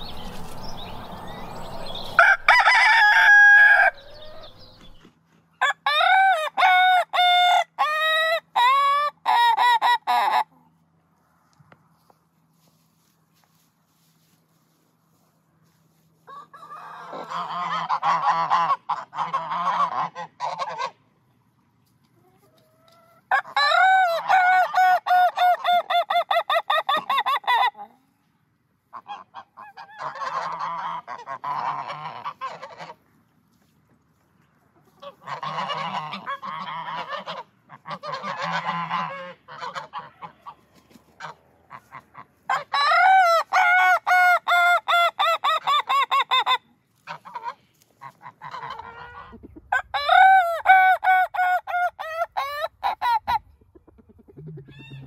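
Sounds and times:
rooster crowing with stuttering notes: 0.0 - 4.9, 23.3 - 27.5, 48.7 - 53.4, 54.4 - 55.0.

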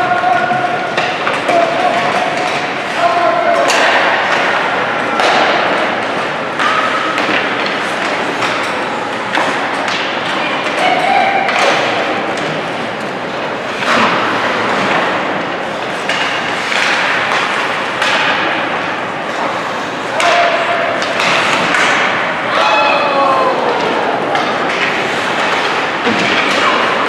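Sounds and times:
puck and sticks hitting boards: 0.0 - 27.0
people shouting: 20.1 - 24.7.

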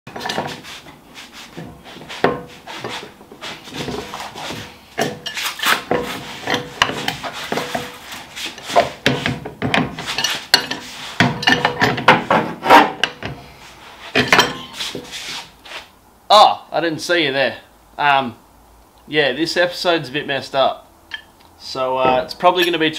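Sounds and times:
wrench clanking on wheel nuts: 8.6 - 12.3.

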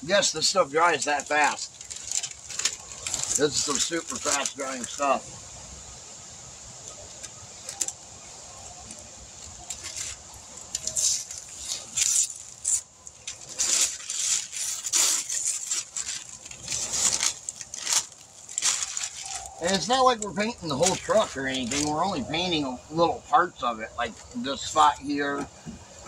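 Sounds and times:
paper and tape rustling and tearing: 0.3 - 5.2, 8.8 - 22.2.

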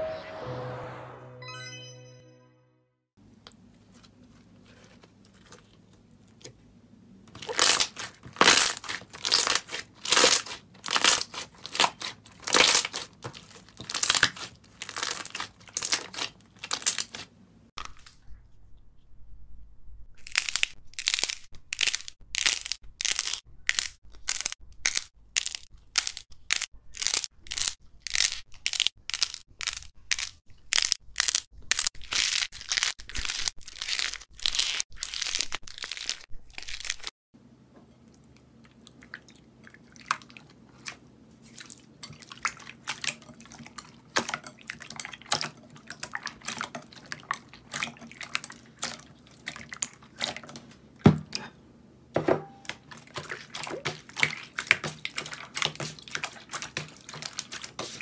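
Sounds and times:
slime crackling crunch: 7.3 - 17.9, 52.6 - 58.0.

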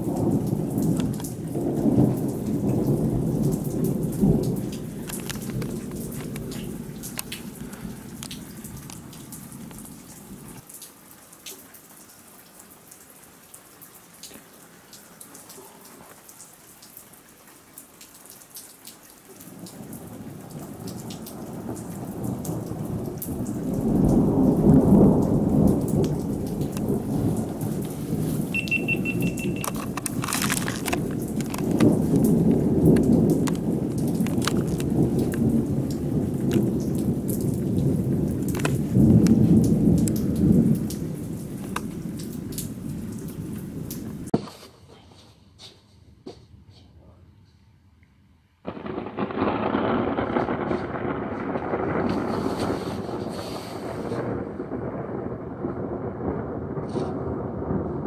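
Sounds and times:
thunder rumbling: 0.0 - 10.7, 19.5 - 44.3, 48.7 - 58.0
rain pattering: 0.0 - 44.4, 48.6 - 58.0.

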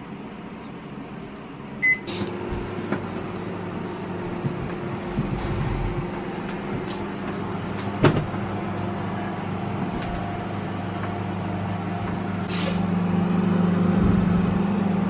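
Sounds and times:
microwave oven humming: 0.0 - 15.0
microwave click: 1.8 - 2.9.

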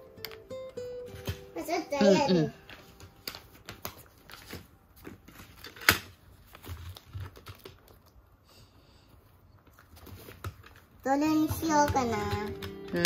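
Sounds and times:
paper sheets being handled: 2.6 - 7.8.

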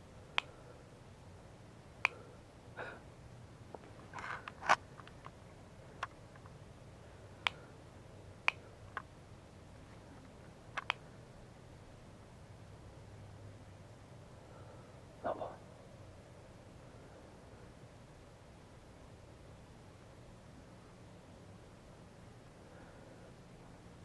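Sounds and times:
sharp faint clicks: 10.2 - 11.0.

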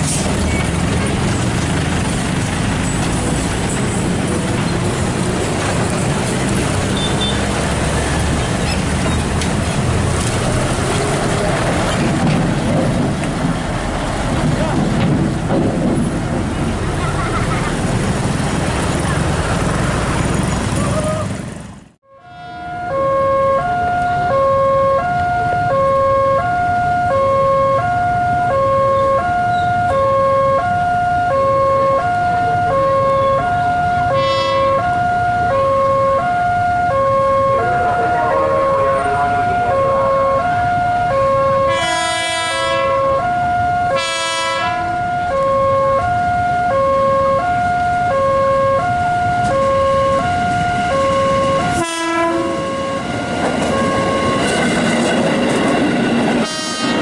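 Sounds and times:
electric train rumble: 0.0 - 57.0
train horn blasts: 22.0 - 54.5, 56.4 - 57.0
level crossing alarm: 22.1 - 41.7, 44.9 - 54.7.

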